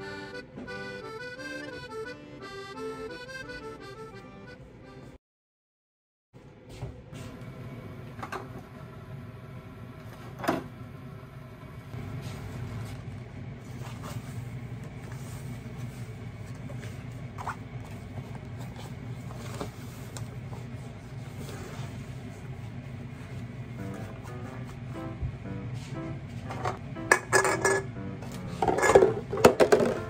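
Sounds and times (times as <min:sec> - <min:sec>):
low appliance hum: 0:06.4 - 0:30.0
dishes knocking and clinking: 0:26.5 - 0:27.9, 0:28.6 - 0:30.0.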